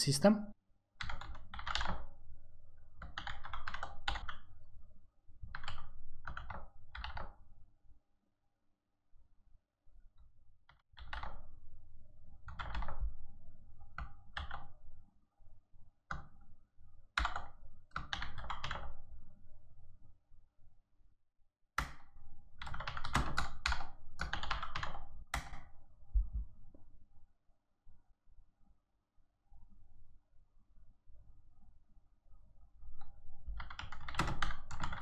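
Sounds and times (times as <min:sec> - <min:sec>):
typing on keyboard: 0:01.0 - 0:02.2, 0:02.8 - 0:04.6, 0:05.4 - 0:07.4, 0:10.7 - 0:11.5, 0:12.4 - 0:13.2, 0:13.8 - 0:14.8, 0:17.2 - 0:19.1, 0:21.8 - 0:25.8, 0:33.5 - 0:35.0.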